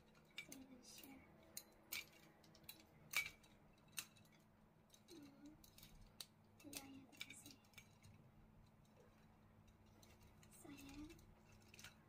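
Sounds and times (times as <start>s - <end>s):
plastic and metal parts clicking: 0.0s - 12.0s.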